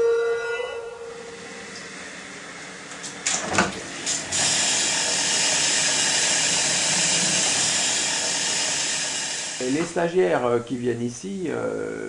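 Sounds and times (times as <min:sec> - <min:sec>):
machine whirring hiss: 0:01.2 - 0:10.5.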